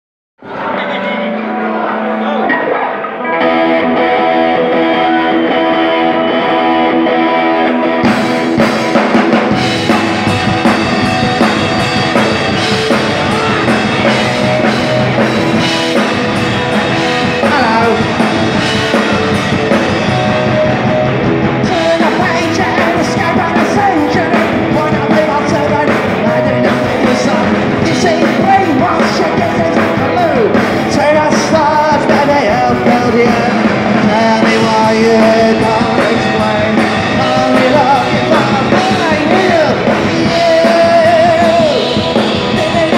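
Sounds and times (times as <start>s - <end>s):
bass guitar: 0.4s - 42.9s
electric guitar: 0.4s - 42.9s
drum kit: 2.4s - 42.9s
man singing: 12.5s - 19.8s, 21.6s - 42.9s.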